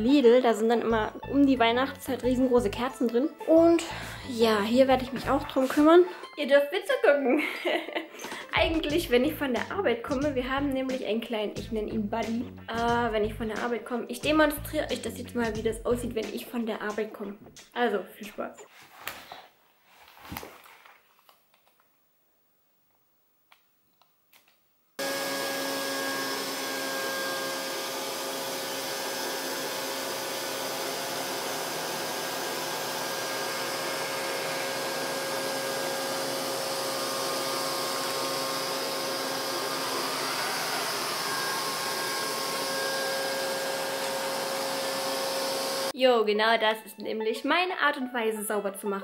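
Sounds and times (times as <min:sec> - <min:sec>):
robot vacuum cleaner humming: 0:25.0 - 0:45.9.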